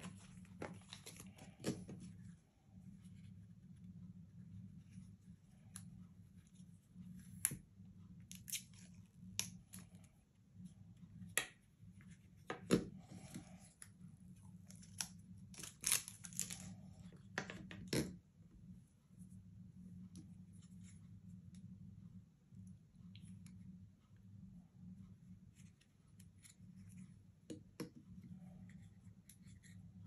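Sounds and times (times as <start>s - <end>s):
faint low hum: 0.0s - 30.0s
packaging crinkling and tearing: 14.8s - 16.7s.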